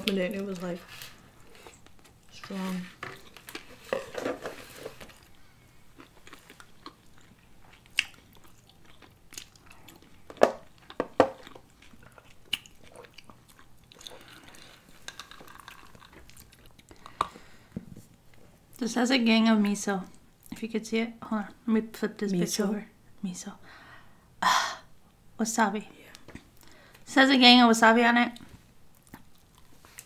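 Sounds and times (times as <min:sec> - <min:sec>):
chewing and biting food: 0:05.1 - 0:17.4.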